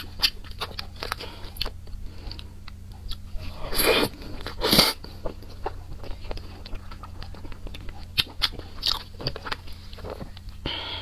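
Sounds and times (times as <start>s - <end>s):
wet chewing clicks and smacks: 0.0s - 3.3s, 4.4s - 10.6s.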